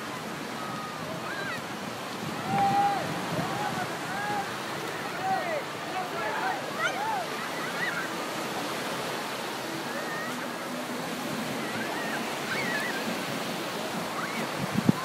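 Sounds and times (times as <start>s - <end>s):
surf breaking on a beach: 0.0s - 15.0s.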